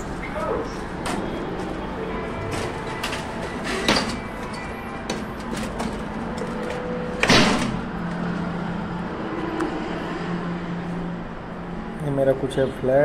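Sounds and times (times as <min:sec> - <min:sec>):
elevator door sliding: 0:00.0 - 0:08.8
elevator humming: 0:00.0 - 0:09.7.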